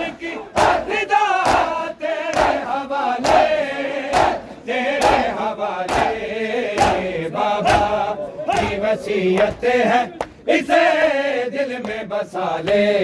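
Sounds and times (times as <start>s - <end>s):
men chanting a lament: 0.0s - 13.0s
chest beating slaps: 0.6s - 2.6s, 6.8s - 8.8s.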